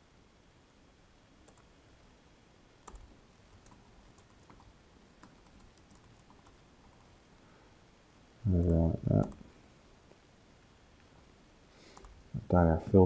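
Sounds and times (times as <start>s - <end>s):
soft keyboard typing: 1.4s - 1.8s, 2.8s - 7.2s, 8.5s - 9.5s, 11.9s - 12.2s.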